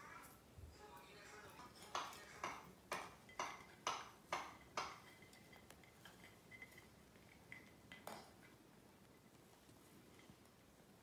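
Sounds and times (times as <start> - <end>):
faint sharp clinking taps: 1.6 - 8.6.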